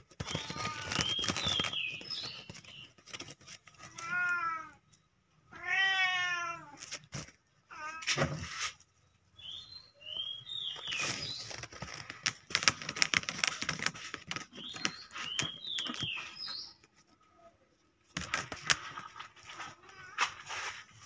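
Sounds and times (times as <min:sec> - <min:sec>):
kitten paws scratching on plastic mat: 0:00.0 - 0:04.3, 0:10.6 - 0:17.2, 0:18.1 - 0:21.0
small birds chirping: 0:00.0 - 0:05.6, 0:08.9 - 0:20.1.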